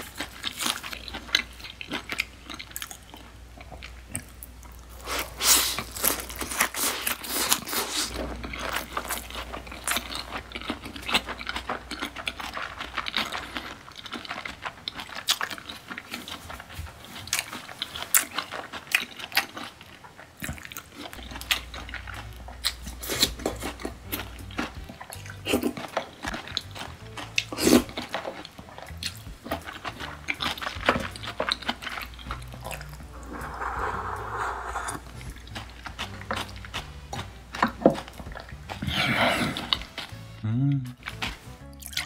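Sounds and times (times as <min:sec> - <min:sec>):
wet chewing mouth sounds: 0:00.0 - 0:42.0.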